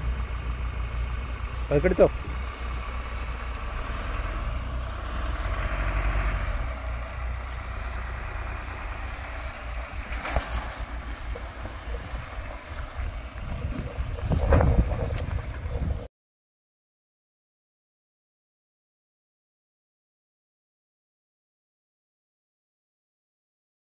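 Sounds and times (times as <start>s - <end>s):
car engine rumbling: 0.0s - 16.1s.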